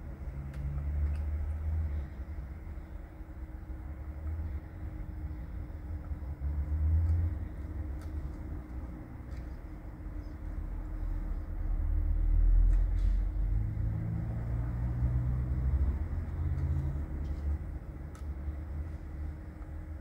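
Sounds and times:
low hum: 0.0s - 20.0s
vehicle engine rumble: 0.0s - 20.0s.

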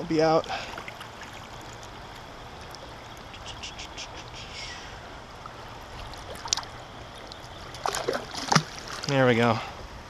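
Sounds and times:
river water rushing: 0.0s - 9.4s
fish splashing in water: 5.9s - 9.1s.

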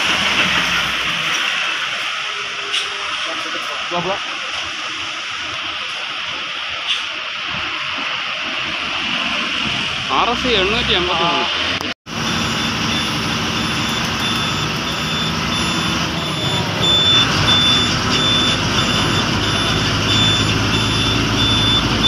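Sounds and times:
bus engine running: 0.0s - 7.0s, 9.6s - 22.0s
high-pitched electronic beeps: 12.2s - 22.0s.

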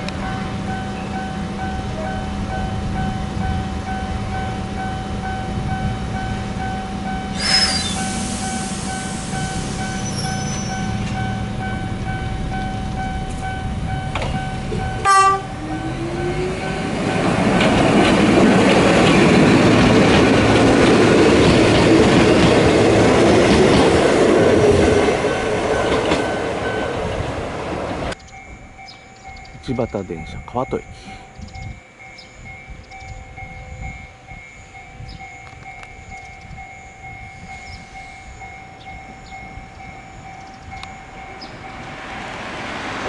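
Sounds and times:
electric train passing: 0.0s - 43.0s
level-crossing bell ringing: 8.0s - 17.6s, 28.2s - 41.9s
train horn blast: 15.0s - 16.3s.

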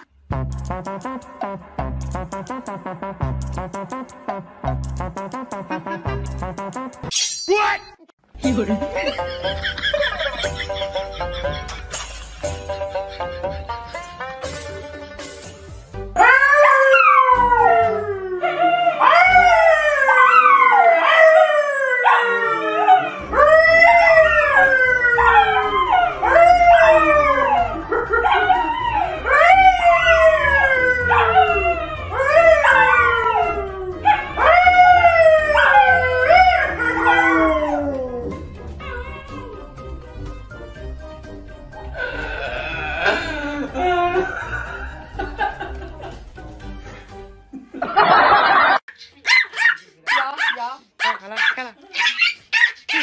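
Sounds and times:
dogs howling: 16.2s - 39.7s
man howling: 22.0s - 39.7s, 42.0s - 44.8s.

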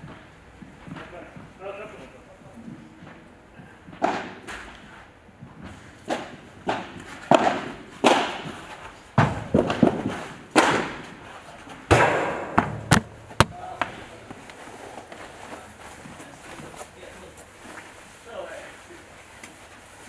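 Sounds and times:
padel ball struck with rackets: 6.1s - 8.6s, 9.2s - 11.0s, 11.9s - 14.0s.

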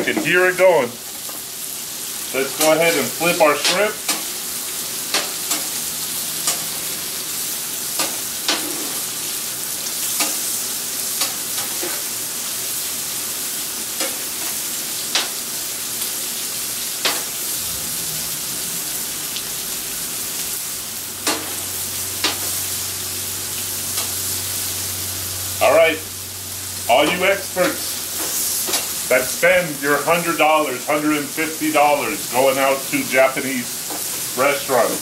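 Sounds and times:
food sizzling on griddle: 0.0s - 35.0s
metal spatula scraping griddle: 8.0s - 9.1s.

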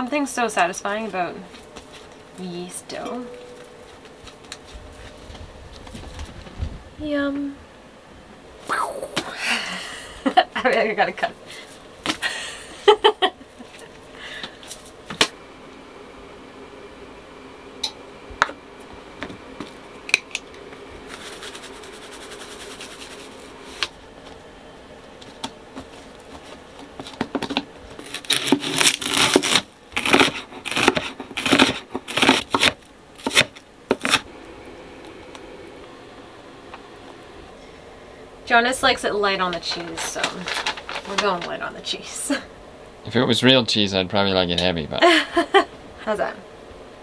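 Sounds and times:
knife chopping onion on board: 28.4s - 34.2s.

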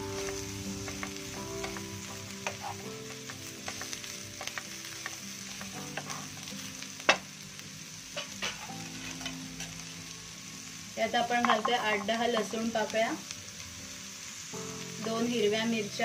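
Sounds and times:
onions sizzling in hot oil: 0.0s - 16.0s
wooden spatula scraping a pan: 2.4s - 6.5s, 8.2s - 9.7s.

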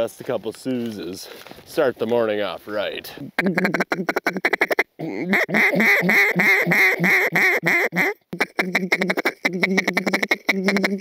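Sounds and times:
duck call quacks: 3.4s - 11.0s.

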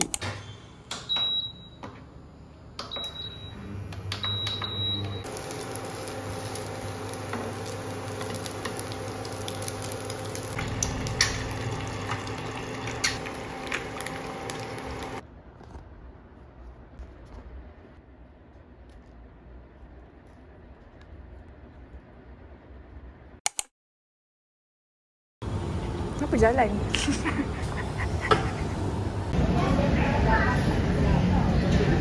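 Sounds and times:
microwave oven humming: 0.0s - 15.3s, 25.4s - 32.0s
microwave keypad beeps: 1.1s - 1.8s, 2.8s - 6.4s.

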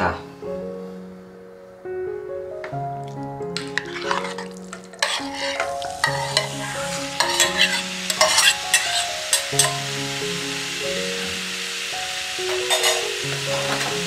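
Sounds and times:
chicken sizzling in a pan: 3.6s - 14.0s.

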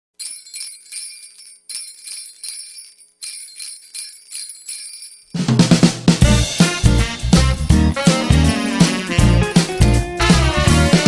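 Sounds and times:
jingle bells shaken: 0.2s - 5.6s, 6.4s - 11.0s
pop song with drums and bass: 6.2s - 11.0s.

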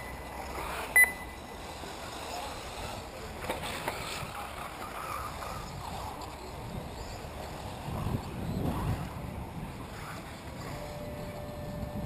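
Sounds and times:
electric rc cars running: 0.0s - 12.0s
wind rumble on microphone: 2.6s - 12.0s.

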